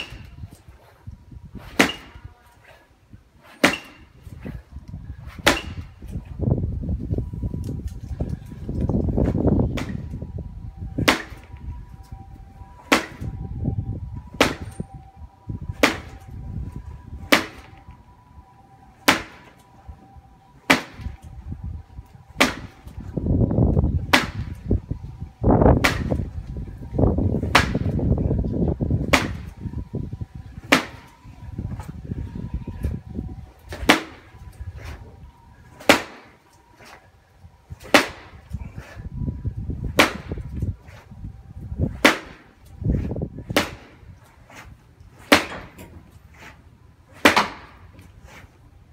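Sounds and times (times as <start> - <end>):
punches smacking wooden post: 1.6 - 2.2, 3.4 - 4.6, 5.3 - 5.9, 11.0 - 11.5, 12.8 - 13.3, 14.3 - 14.8, 15.7 - 16.2, 17.2 - 17.9, 19.0 - 19.6, 20.7 - 21.3, 22.3 - 23.0, 24.1 - 24.6, 25.8 - 26.3, 27.4 - 28.0, 29.0 - 29.5, 30.6 - 31.1, 33.6 - 35.0, 35.7 - 37.0, 37.7 - 39.0, 39.9 - 40.7, 41.9 - 44.1, 45.1 - 46.2, 47.1 - 48.1.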